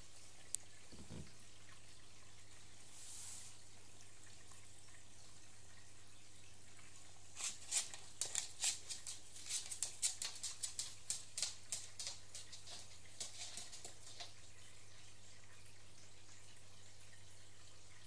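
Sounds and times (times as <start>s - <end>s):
low aquarium hum: 0.0s - 18.0s.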